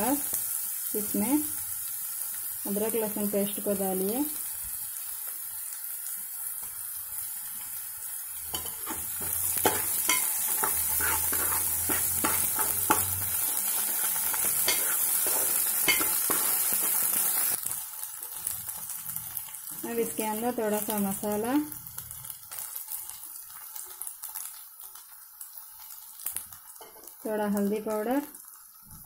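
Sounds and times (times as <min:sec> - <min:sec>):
onions sizzling in hot oil: 0:00.0 - 0:29.0
steel spoon scraping a pot: 0:08.5 - 0:17.1.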